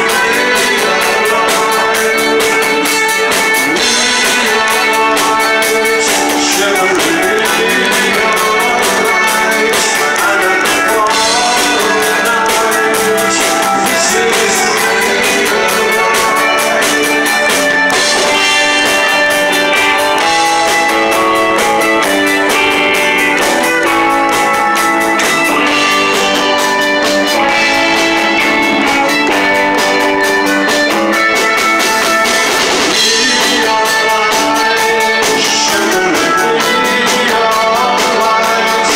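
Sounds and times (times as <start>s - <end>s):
man singing into microphone: 0.0s - 22.6s, 32.0s - 38.9s
drum kit: 0.0s - 38.9s
electric guitars: 0.0s - 38.9s.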